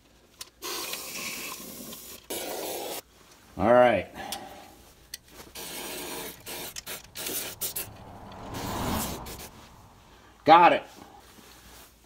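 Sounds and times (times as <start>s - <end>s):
sprayer hissing bursts: 5.3s - 8.0s
dull rushing spray: 5.3s - 10.5s.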